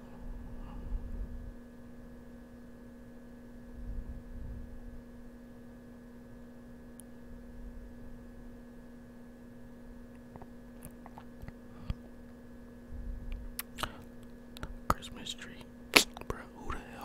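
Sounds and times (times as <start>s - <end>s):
soft low rumble: 0.0s - 2.2s, 3.6s - 5.2s, 12.8s - 13.6s
steady electrical hum: 0.0s - 17.0s.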